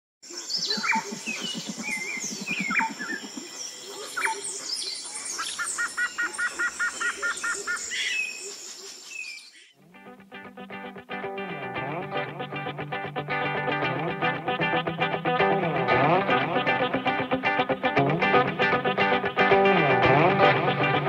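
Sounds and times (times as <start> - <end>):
birds singing: 0.3 - 9.8
guitar music: 9.8 - 21.0.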